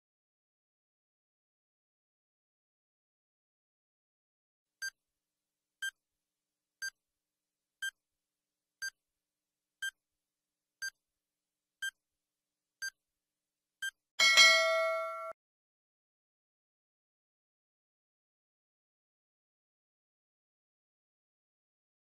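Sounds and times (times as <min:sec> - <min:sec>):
ringing time's-up tone: 0:14.2 - 0:15.4.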